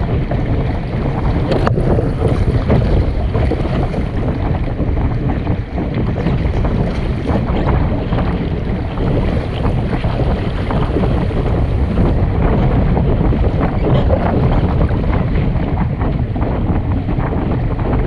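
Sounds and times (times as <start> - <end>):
water splashing against boat: 0.0 - 18.0
wind buffeting microphone: 0.0 - 18.0.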